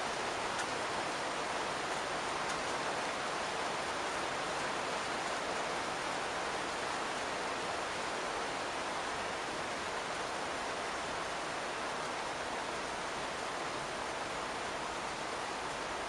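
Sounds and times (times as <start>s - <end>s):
rain on a roof: 0.0s - 16.0s.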